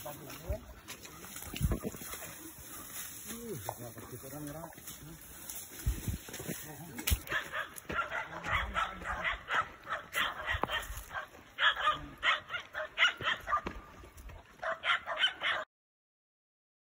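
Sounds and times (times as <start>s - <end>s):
dogs barking and yipping: 0.4s - 3.2s, 7.2s - 15.7s.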